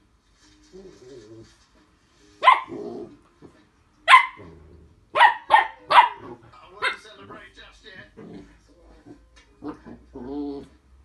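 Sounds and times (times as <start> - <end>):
puppy barking: 2.4 - 2.8, 4.1 - 4.5, 5.1 - 7.0.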